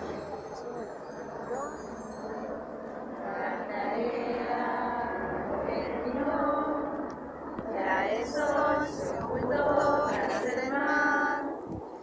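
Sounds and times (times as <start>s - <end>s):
women and girls singing in unison: 3.1s - 11.8s.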